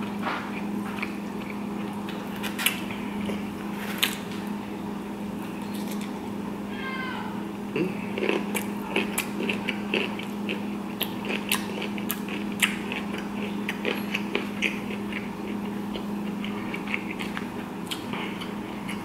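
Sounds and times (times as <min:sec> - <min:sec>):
mouth chewing with wet crunches: 0:00.0 - 0:04.5, 0:07.9 - 0:19.0
steady low hum: 0:00.0 - 0:19.0.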